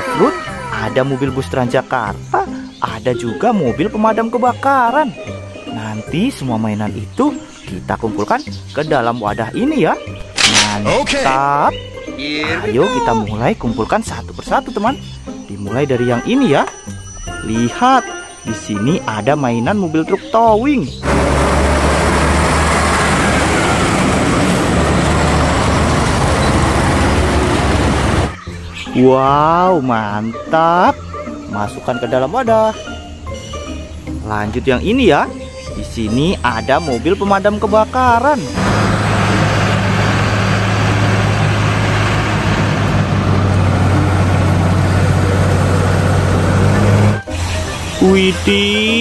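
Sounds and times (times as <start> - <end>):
tyre and road noise: 10.2 - 11.5, 21.0 - 28.4, 38.4 - 48.8
truck engine rumble: 10.2 - 11.6, 21.0 - 28.4, 38.4 - 47.3.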